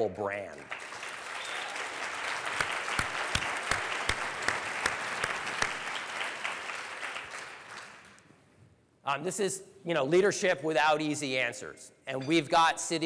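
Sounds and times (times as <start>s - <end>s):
audience applauding: 0.6s - 8.2s
loud individual claps: 0.6s - 8.3s.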